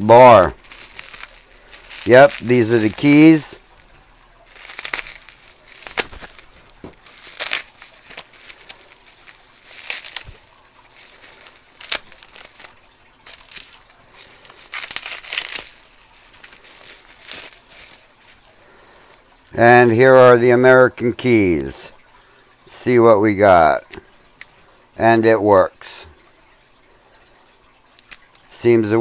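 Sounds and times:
bubble wrap crinkling: 0:00.1 - 0:19.4.

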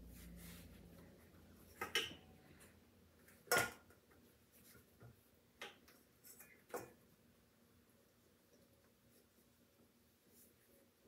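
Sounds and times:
metal pans clicking and knocking: 0:01.7 - 0:02.3, 0:03.4 - 0:03.9.

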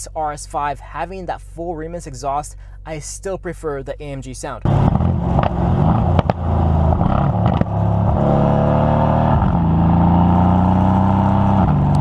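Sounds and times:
exhaust pops: 0:04.6 - 0:08.4
car engine accelerating: 0:04.6 - 0:12.0.

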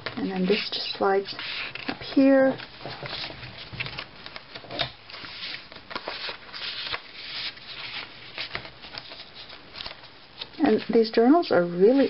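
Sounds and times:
paper rustling and sliding: 0:00.3 - 0:01.9, 0:02.6 - 0:10.5.

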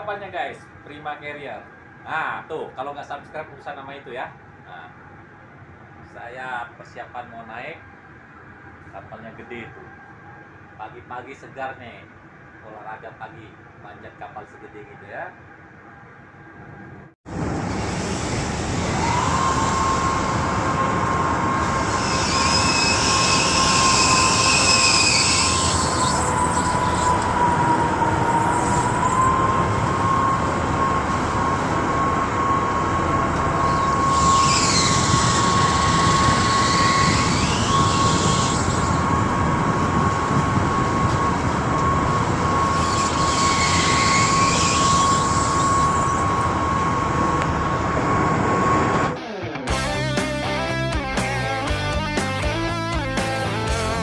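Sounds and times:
steady high whine: 0:00.0 - 0:54.0
boat machinery running: 0:17.3 - 0:51.6
squealing: 0:18.8 - 0:39.4, 0:41.0 - 0:47.1.

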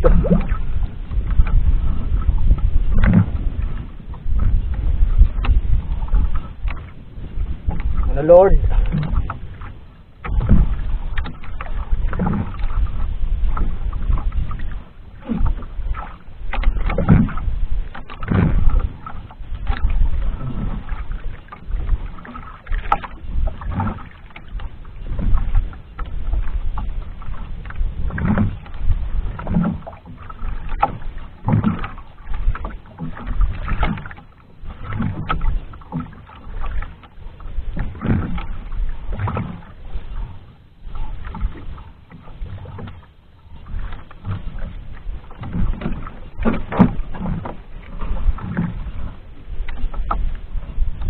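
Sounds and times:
water slapping against hull: 0:00.0 - 0:51.0
knocks on boat: 0:01.2 - 0:06.9, 0:07.6 - 0:15.6, 0:16.5 - 0:34.2, 0:34.8 - 0:36.9, 0:37.8 - 0:38.5, 0:43.7 - 0:48.8.

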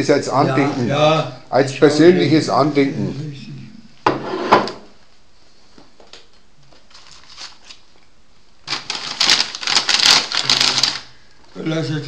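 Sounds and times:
wrapping paper crinkling: 0:06.7 - 0:08.0, 0:08.6 - 0:11.3.

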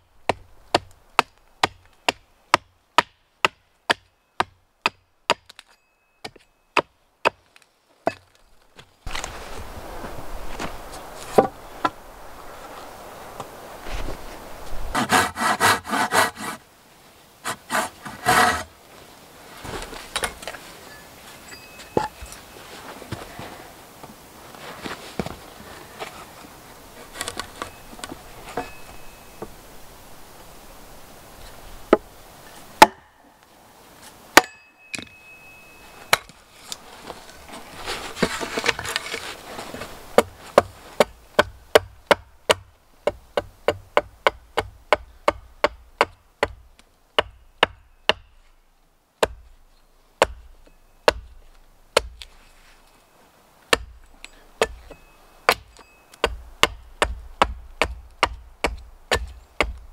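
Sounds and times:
axe chopping wood: 0:00.3 - 0:07.4, 0:32.8 - 0:33.0, 0:40.1 - 0:46.6, 0:47.2 - 0:48.3, 0:49.2 - 0:49.4, 0:50.2 - 0:51.3, 0:51.9 - 0:52.3, 0:53.7 - 0:59.9.

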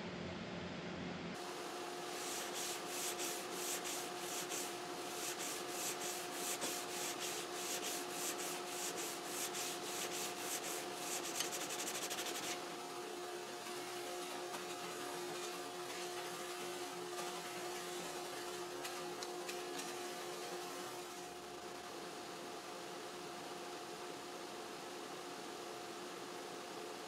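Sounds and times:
sanding block on wood: 0:02.0 - 0:12.6.

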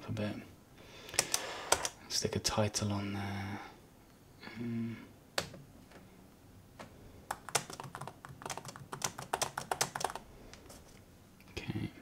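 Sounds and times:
typing on laptop keyboard: 0:01.1 - 0:02.0, 0:07.3 - 0:10.3.

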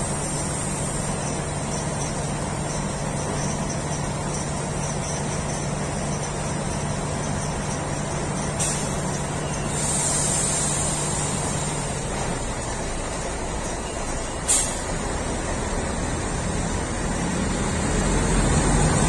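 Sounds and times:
train hum and rumble: 0:00.0 - 0:19.0
air hiss: 0:09.7 - 0:11.9, 0:14.5 - 0:14.9.

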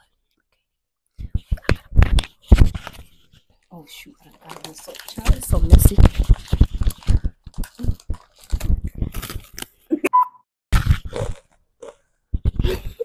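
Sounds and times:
crunching and chewing: 0:01.5 - 0:09.9, 0:10.8 - 0:12.7.

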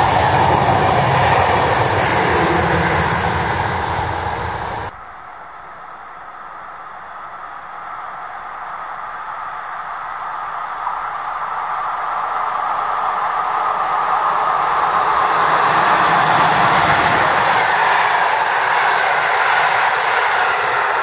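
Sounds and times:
steel wheels rolling on rails: 0:00.0 - 0:04.9, 0:11.8 - 0:21.0.

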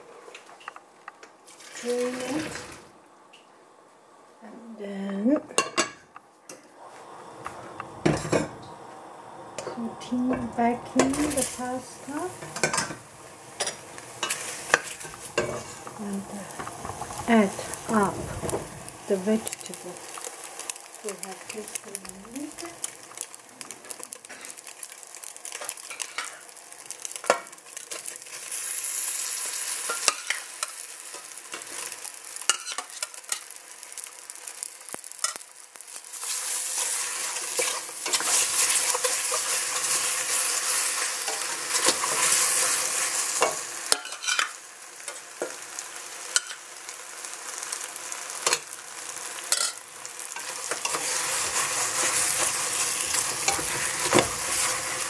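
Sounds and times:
pasta sizzling in a pot: 0:00.0 - 0:55.0
wooden spatula scraping a pot: 0:36.2 - 0:44.5, 0:50.4 - 0:55.0.

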